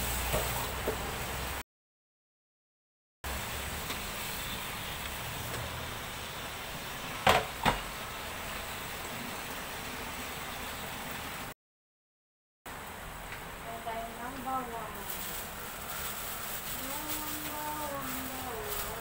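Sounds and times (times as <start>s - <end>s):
steady background noise: 12.7s - 19.0s.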